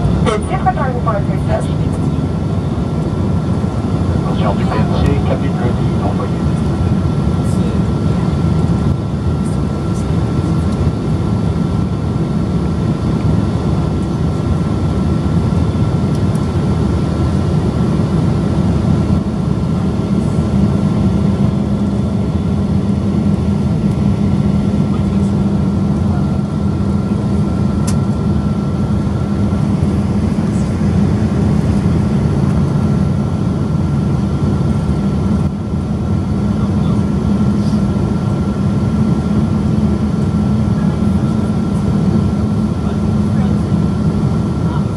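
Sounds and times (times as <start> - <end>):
thin steady whine: 0.0 - 10.9
airplane cabin engine drone: 0.0 - 44.9.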